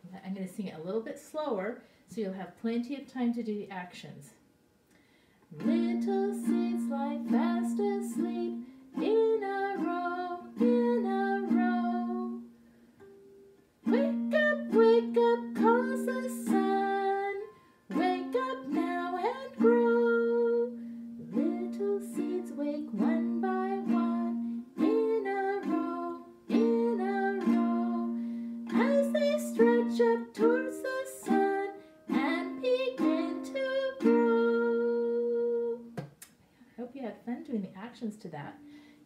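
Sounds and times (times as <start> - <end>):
woman singing: 5.6 - 12.5, 13.9 - 36.0
strummed ukulele chords: 5.6 - 36.0.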